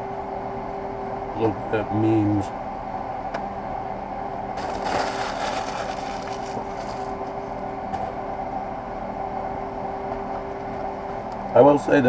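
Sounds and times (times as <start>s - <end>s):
low machinery hum: 0.0s - 12.0s
paper rustling: 4.6s - 7.2s.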